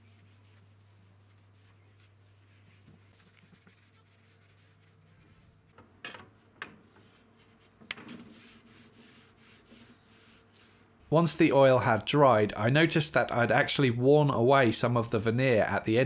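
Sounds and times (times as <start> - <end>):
hand rubbing wooden tabletop: 0.0 - 5.8, 6.8 - 11.0.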